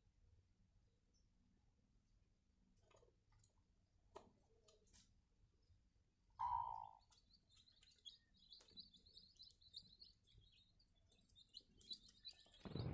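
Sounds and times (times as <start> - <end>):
chicks peeping: 6.4 - 12.9.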